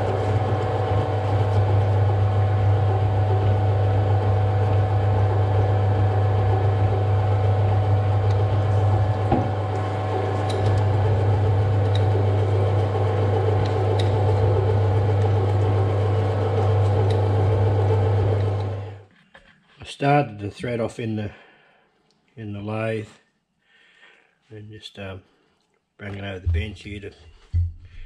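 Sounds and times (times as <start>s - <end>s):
lathe motor hum: 0.0s - 19.0s.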